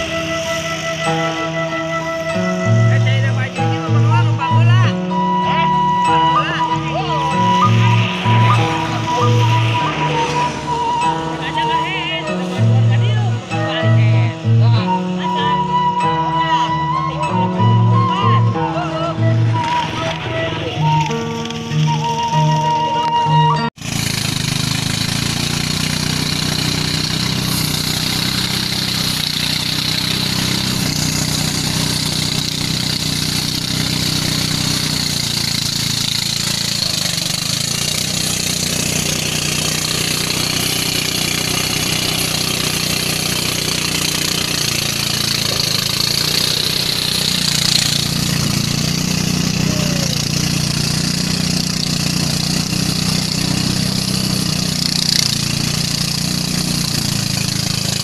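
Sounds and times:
rice thresher engine drone: 0:00.0 - 0:58.0
steady high hiss: 0:05.6 - 0:13.6.

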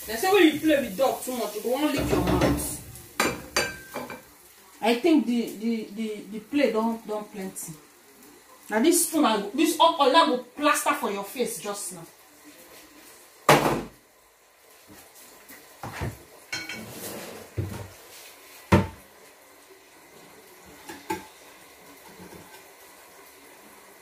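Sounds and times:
kitchen items knocking and banging: 0:01.9 - 0:04.2, 0:13.5 - 0:14.0, 0:18.7 - 0:19.0.

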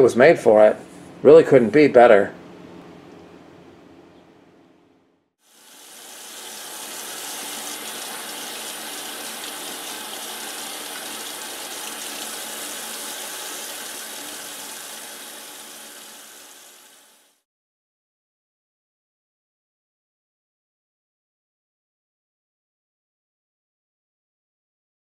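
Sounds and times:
faucet running into sink: 0:05.5 - 0:17.3.

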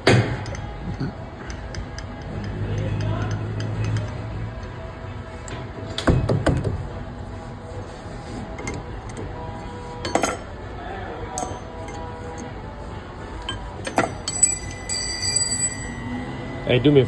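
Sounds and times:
metallic clinks and taps: 0:11.4 - 0:12.0, 0:13.5 - 0:16.0.

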